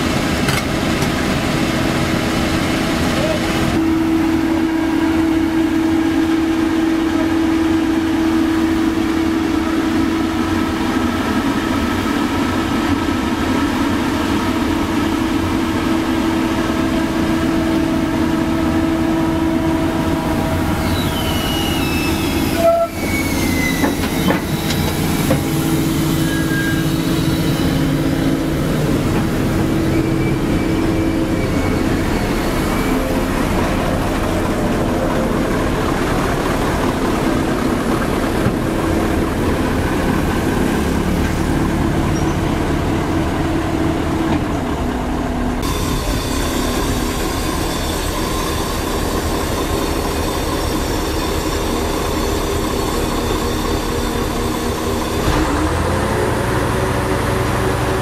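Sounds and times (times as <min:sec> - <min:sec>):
excavator engine droning: 0:00.0 - 0:58.0
high squeals gliding down: 0:18.7 - 0:41.2, 0:45.6 - 0:57.7.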